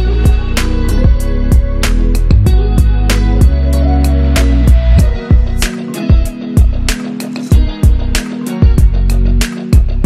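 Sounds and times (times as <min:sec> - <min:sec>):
guitar instrumental music: 0:00.0 - 0:10.0.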